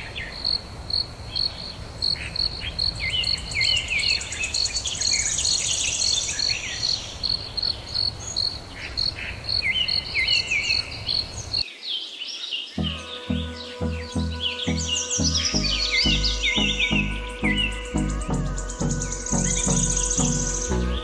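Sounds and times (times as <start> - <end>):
bird chirps and calls: 12.7 - 21.0
fast high trill: 12.8 - 21.0.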